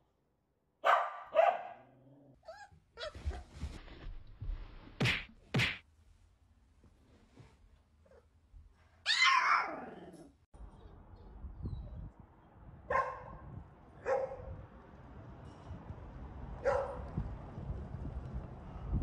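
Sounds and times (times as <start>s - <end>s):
dog barking sharply: 0.8s - 1.8s, 12.9s - 13.3s, 14.0s - 14.5s
dog yelping: 9.1s - 10.0s.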